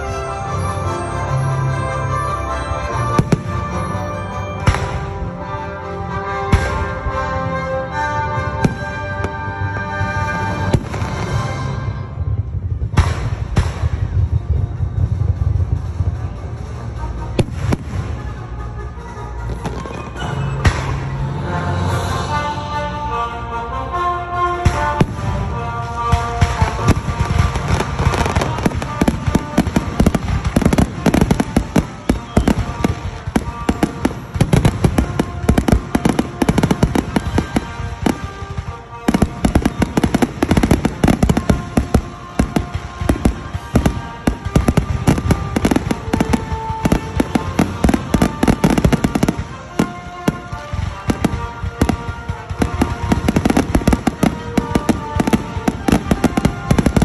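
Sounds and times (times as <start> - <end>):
music playing: 0.0 - 57.0
fireworks bangs: 2.8 - 5.4, 8.6 - 16.1, 24.6 - 57.0.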